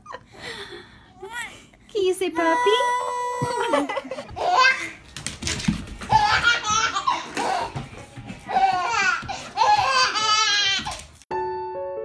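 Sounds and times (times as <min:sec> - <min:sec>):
baby laughing: 0:03.4 - 0:05.0, 0:06.0 - 0:07.8, 0:08.5 - 0:11.1.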